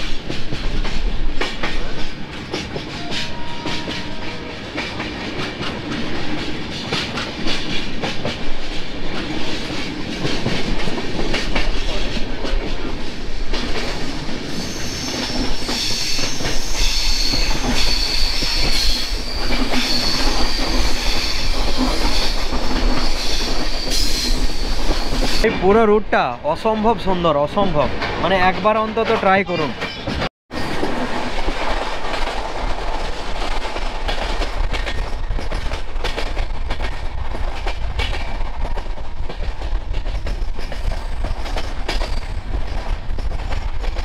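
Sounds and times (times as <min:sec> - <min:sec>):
train wheels clacking on rails: 0:00.0 - 0:25.9, 0:27.6 - 0:44.0
high wheel squeal: 0:14.5 - 0:25.4.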